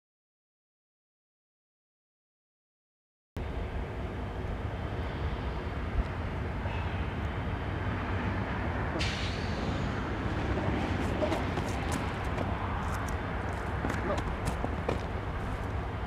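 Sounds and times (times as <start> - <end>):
distant traffic rumble: 3.4 - 16.0.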